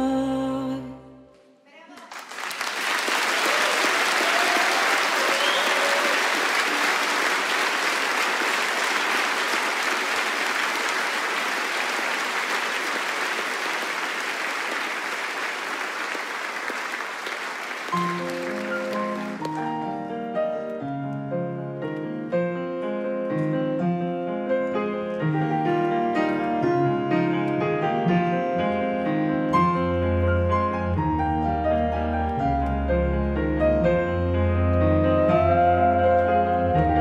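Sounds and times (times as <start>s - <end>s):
audience applauding: 1.9s - 20.0s
piano playing: 5.9s - 37.0s.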